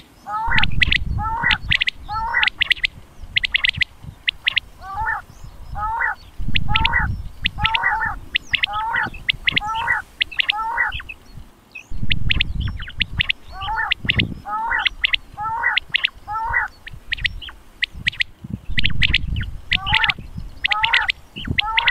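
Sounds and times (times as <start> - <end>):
quail calling: 0.0 - 21.9
low rumble: 0.5 - 4.2, 4.8 - 9.2, 11.3 - 15.0, 18.5 - 20.6.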